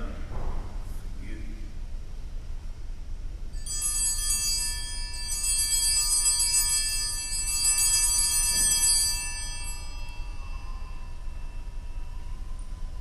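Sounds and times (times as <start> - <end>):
small hand bells ringing: 3.6 - 13.0.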